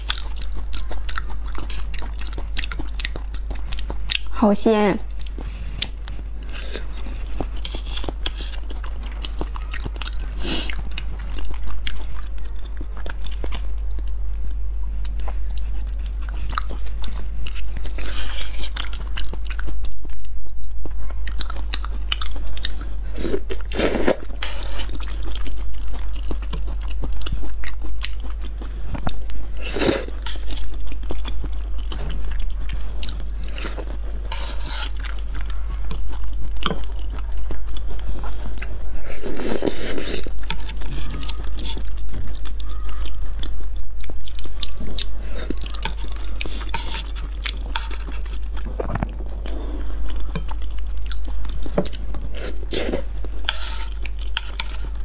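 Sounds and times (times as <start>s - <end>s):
steady low hum: 0.0s - 55.0s
wet chewing mouth sounds: 0.0s - 55.0s.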